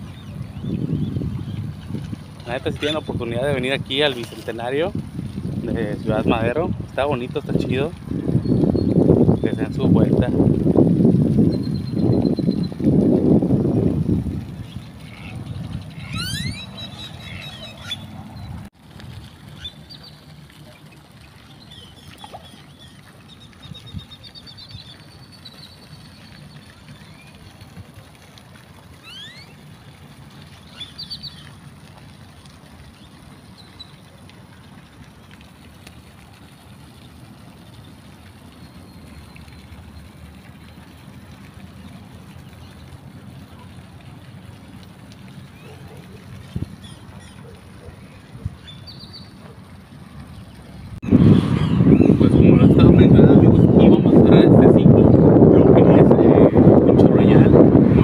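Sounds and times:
small birds chirping: 0:00.0 - 0:04.8, 0:14.6 - 0:18.7, 0:19.5 - 0:27.4, 0:29.0 - 0:29.6, 0:30.6 - 0:31.6, 0:45.5 - 0:49.5, 0:50.4 - 0:54.0
short rising bird whistles: 0:16.1 - 0:18.0, 0:29.1 - 0:29.5.

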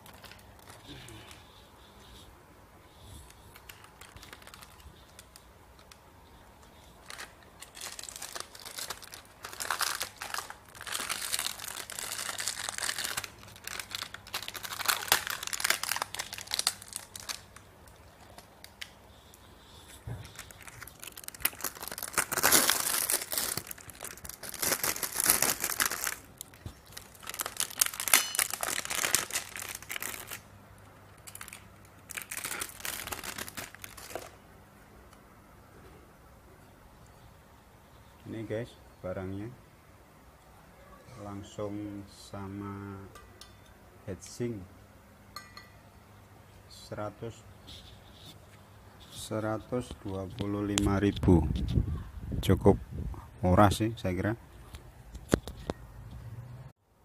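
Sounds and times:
plastic wrapping crinkling: 0:00.0 - 0:02.2, 0:03.2 - 0:34.4.

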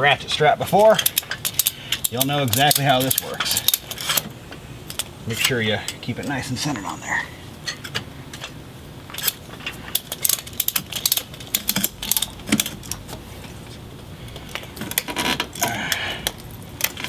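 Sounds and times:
ratchet strap clicking: 0:00.9 - 0:04.2, 0:09.2 - 0:13.1.

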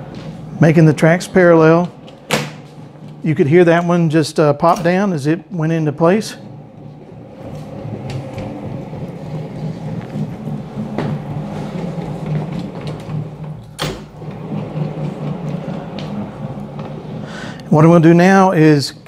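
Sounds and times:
wheels rumbling on metal tracks: 0:05.2 - 0:18.5.

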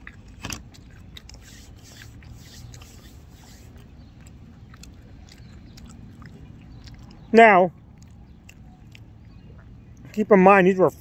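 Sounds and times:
chewing crunchy food: 0:00.0 - 0:10.3
low steady rumble: 0:00.0 - 0:11.0.

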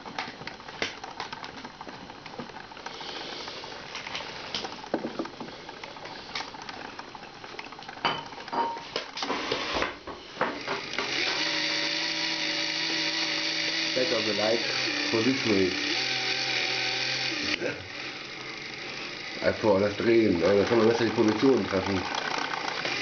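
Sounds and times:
electric motor hum: 0:00.0 - 0:23.0
plastic gears clicking and knocking: 0:00.1 - 0:03.0, 0:10.6 - 0:17.5, 0:18.2 - 0:23.0.

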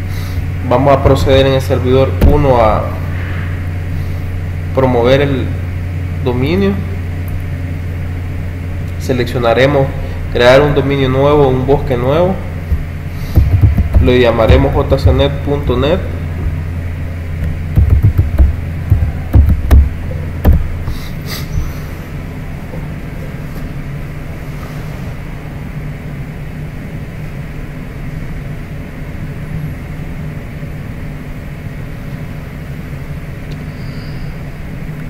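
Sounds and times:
low hum with hiss: 0:00.0 - 0:35.0
heavy keyboard key strikes: 0:17.4 - 0:20.7.

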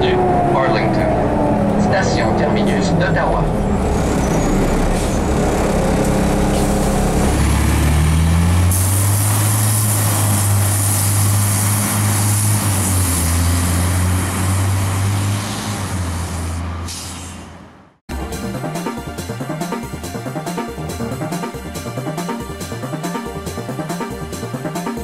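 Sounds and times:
bus diesel engine: 0:00.0 - 0:25.0.

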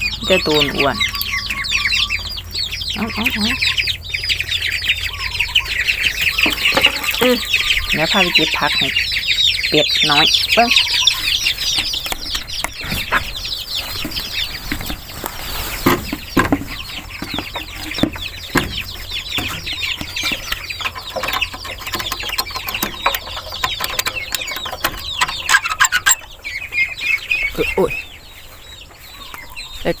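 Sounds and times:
ducklings and chicks peeping: 0:00.0 - 0:30.0
knocks: 0:15.8 - 0:25.7.

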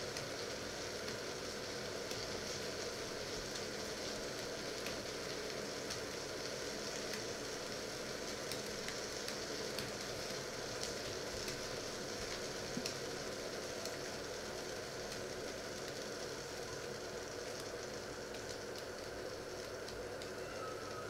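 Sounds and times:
faint ticks and crackles: 0:00.0 - 0:21.0
water heating in pot hissing: 0:00.0 - 0:21.0.

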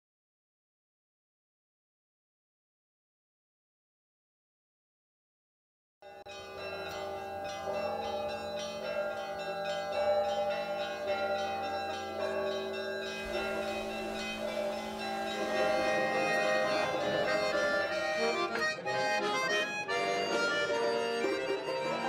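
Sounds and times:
church bells pealing: 0:06.0 - 0:22.0
low hum from large bell: 0:06.1 - 0:18.6.

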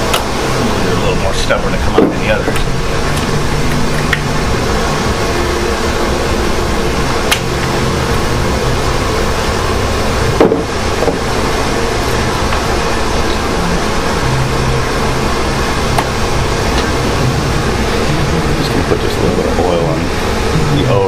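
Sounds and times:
fan blower whirring: 0:00.0 - 0:21.0
knock on engine: 0:01.9 - 0:02.7, 0:10.4 - 0:11.2.

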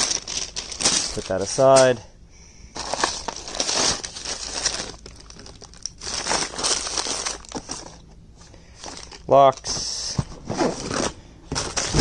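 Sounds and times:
hands rummaging through plastic tub: 0:00.0 - 0:02.0, 0:02.8 - 0:12.0
light clatter of cables and cases: 0:02.8 - 0:12.0.

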